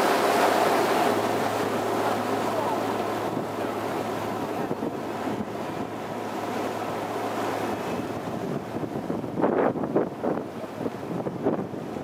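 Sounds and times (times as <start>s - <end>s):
low engine hum: 0.0s - 12.0s
water rushing along hull: 0.0s - 12.0s
wind on microphone: 2.6s - 12.0s.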